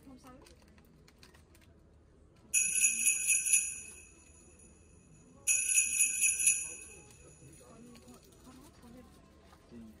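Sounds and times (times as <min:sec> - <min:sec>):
jingle bells jingling: 0:05.5 - 0:07.3.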